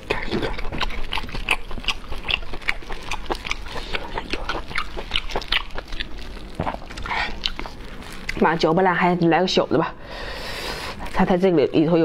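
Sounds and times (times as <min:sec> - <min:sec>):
wet chewing and lip-smacking: 0:00.0 - 0:08.5.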